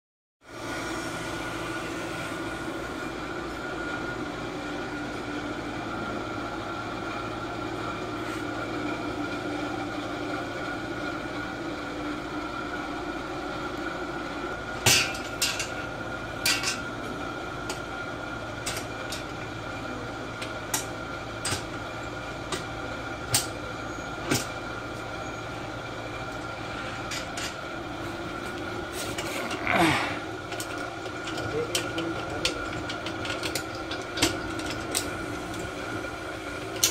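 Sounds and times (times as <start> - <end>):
steady hum with held tones: 0.5 - 36.9.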